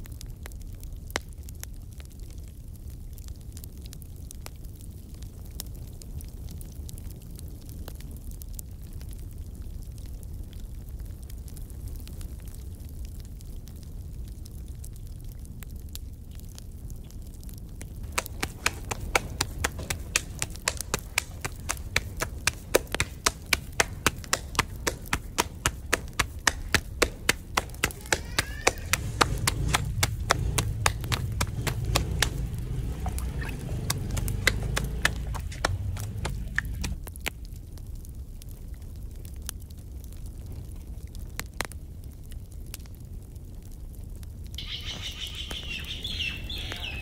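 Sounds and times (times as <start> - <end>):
dough slapped between palms: 18.1 - 37.1.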